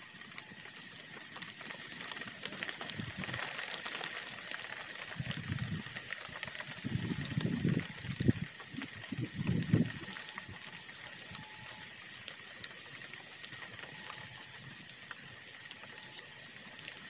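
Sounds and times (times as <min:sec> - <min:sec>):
leaves burning and crackling: 0:00.0 - 0:17.0.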